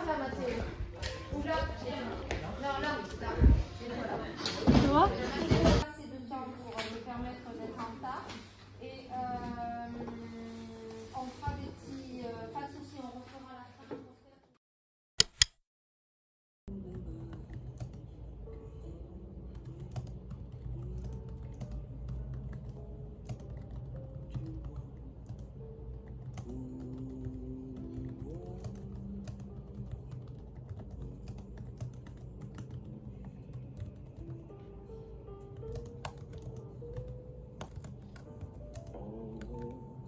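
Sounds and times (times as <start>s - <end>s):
soft background music: 0.0s - 13.8s, 16.7s - 40.0s
laptop keyboard typing: 16.7s - 18.1s, 19.4s - 34.6s, 35.4s - 39.9s.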